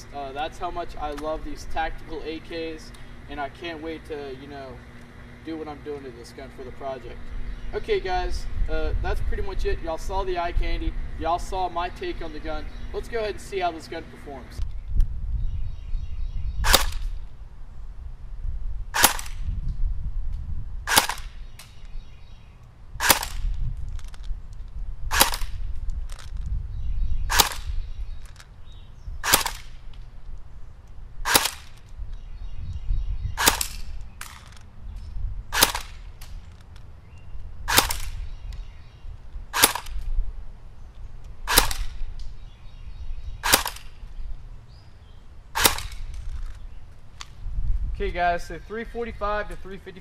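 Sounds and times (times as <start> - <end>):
airsoft gun firing single shots: 16.6 - 17.2, 18.9 - 19.5, 20.8 - 22.0, 23.0 - 23.5, 25.1 - 25.6, 27.2 - 27.8, 29.2 - 29.9, 31.2 - 31.9, 33.4 - 34.6, 35.5 - 36.4, 37.7 - 38.4, 39.5 - 40.1, 41.4 - 42.2, 43.4 - 44.0, 45.5 - 46.2.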